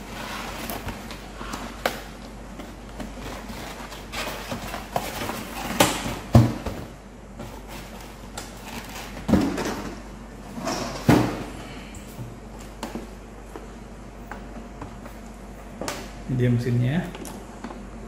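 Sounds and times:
cardboard scraping and rustling: 0.0 - 1.8, 2.5 - 6.3.

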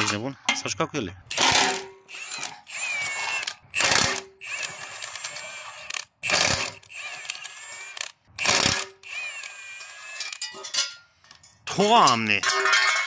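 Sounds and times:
impact wrench hammering: 1.3 - 4.5, 6.2 - 6.9, 8.4 - 9.0
tool motor running: 1.3 - 10.4.

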